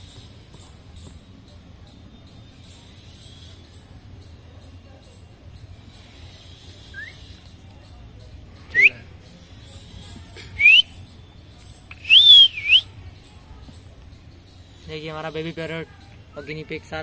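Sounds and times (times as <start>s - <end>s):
short rising whistles: 12.0s - 12.9s.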